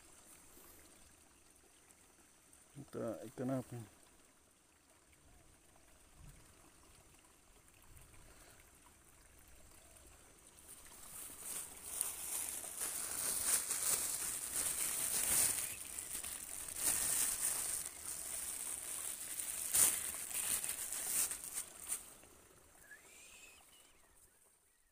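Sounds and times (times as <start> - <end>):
plastic bag crinkling: 11.0 - 22.1.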